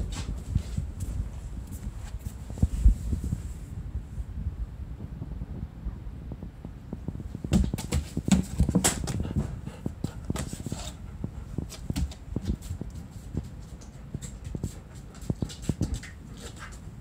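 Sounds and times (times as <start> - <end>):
dog claws clicking on hard floor: 13.6 - 16.8.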